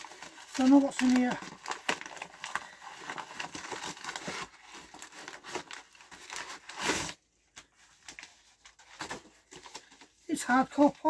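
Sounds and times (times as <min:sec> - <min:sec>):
paper bag rustling and crinkling: 0:00.0 - 0:11.0
paper tearing: 0:03.1 - 0:07.2.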